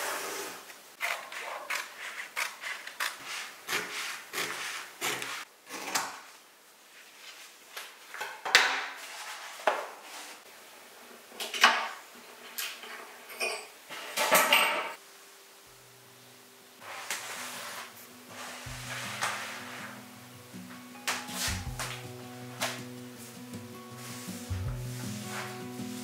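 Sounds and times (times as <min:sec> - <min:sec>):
vinyl film rustling and scraping: 0:16.8 - 0:20.1, 0:20.7 - 0:26.0.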